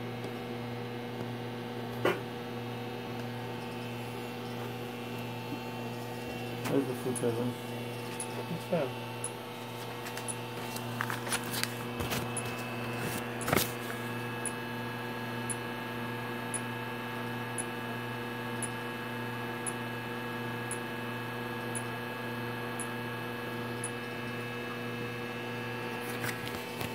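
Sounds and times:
electrical hum: 0.0s - 26.9s
laser pulse ticks: 6.7s - 7.5s, 15.4s - 15.6s, 17.5s - 17.7s, 18.6s - 18.8s, 21.7s - 21.9s, 23.7s - 24.1s.

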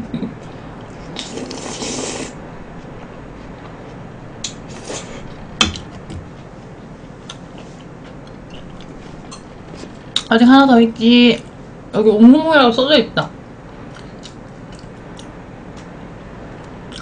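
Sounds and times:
noisy rustling: 0.4s - 11.9s.

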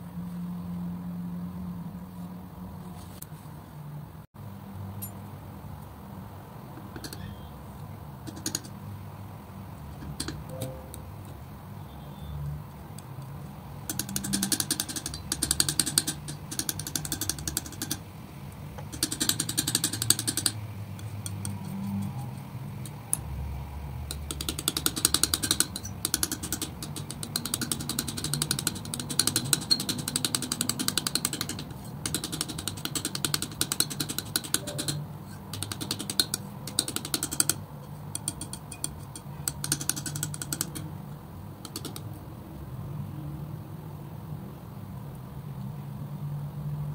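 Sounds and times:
palette knife mixing thick paint: 24.1s - 40.8s.

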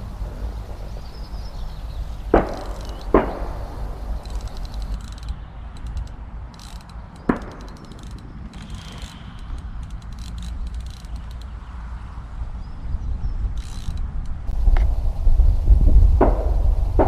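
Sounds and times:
wind rumbling on microphone: 0.0s - 17.0s
sharp knocks: 2.3s - 5.0s, 7.2s - 8.2s
fishing reel ticking: 2.3s - 11.6s, 13.6s - 14.1s.

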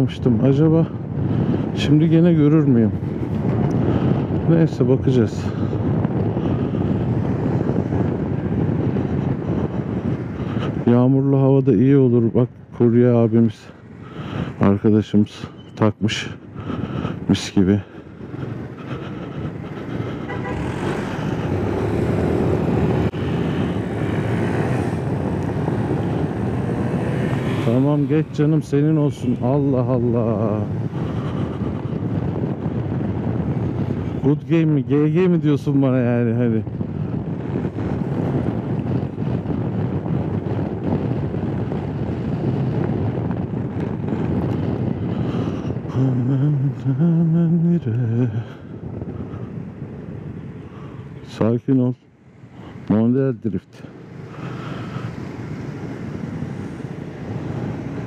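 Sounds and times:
scooter engine and road noise: 0.0s - 58.0s
wind noise on microphone: 0.0s - 58.0s
scooter engine: 18.9s - 27.9s.

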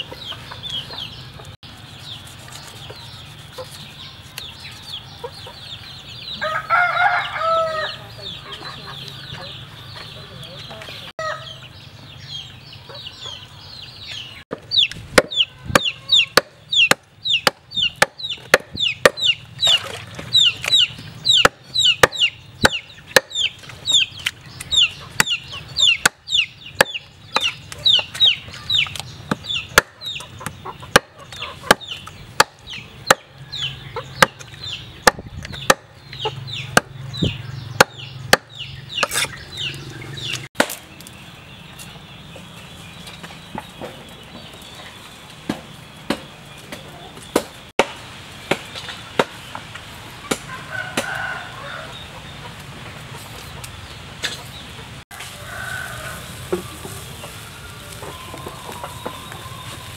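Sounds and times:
chicks cheeping: 0.0s - 47.7s, 49.4s - 59.9s
cleaver chopping on wooden block: 14.5s - 19.3s, 20.7s - 23.4s, 29.3s - 30.0s, 30.9s - 33.3s, 34.2s - 37.0s, 37.8s - 39.3s.

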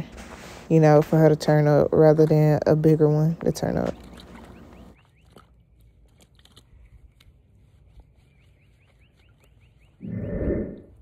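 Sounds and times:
bird chirping: 3.6s - 5.9s, 8.0s - 10.9s.

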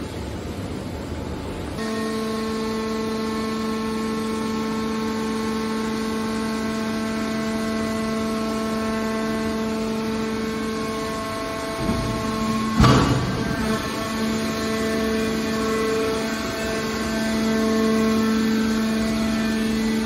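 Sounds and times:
hydraulic power unit whining hum: 0.0s - 20.0s.

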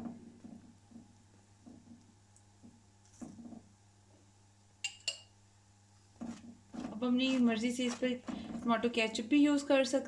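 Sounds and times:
spoon scraping sauce on dough: 6.0s - 8.7s.

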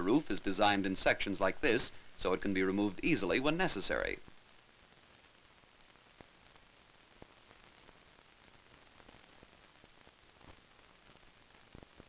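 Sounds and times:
old film soundtrack hiss: 0.0s - 12.0s
faint clicks and pops: 4.1s - 12.0s.

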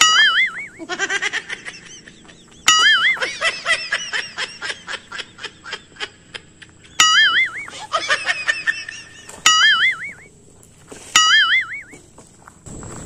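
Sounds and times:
cartoon laughing sound effect: 0.0s - 10.1s.

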